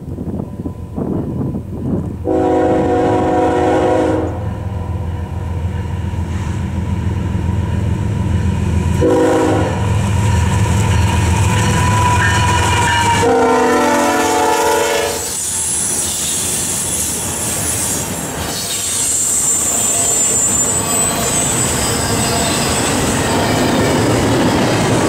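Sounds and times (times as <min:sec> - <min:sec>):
diesel locomotive engines rumbling: 0:00.0 - 0:25.0
locomotive air horn blasts: 0:02.2 - 0:04.5, 0:09.0 - 0:09.9, 0:11.8 - 0:15.4.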